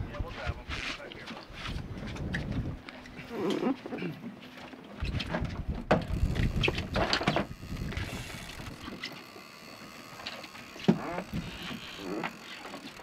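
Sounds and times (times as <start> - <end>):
fishing reel cranking: 6.1 - 13.0.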